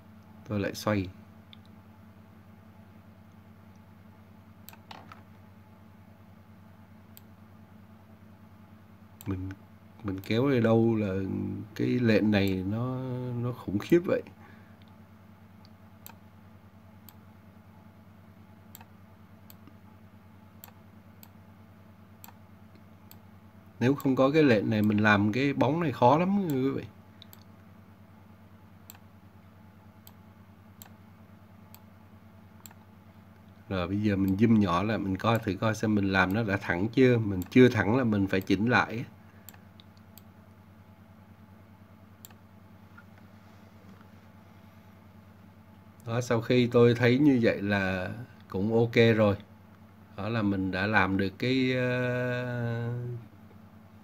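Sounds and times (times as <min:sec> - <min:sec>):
low electrical hum: 0:00.0 - 0:54.0
computer mouse clicks: 0:04.6 - 0:05.3, 0:15.6 - 0:16.2, 0:18.7 - 0:19.8, 0:20.6 - 0:21.4, 0:22.2 - 0:23.2, 0:27.2 - 0:27.5, 0:30.8 - 0:31.0, 0:32.6 - 0:32.9, 0:39.4 - 0:40.3, 0:42.2 - 0:42.4.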